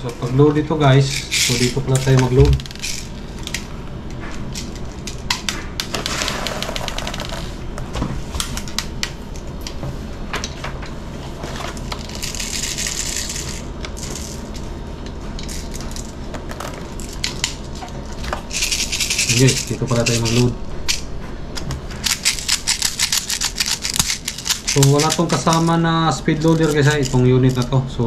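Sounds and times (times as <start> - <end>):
plastic pellets clicking and rattling: 1.0 - 3.6, 5.8 - 7.5, 11.9 - 14.4, 22.0 - 27.8.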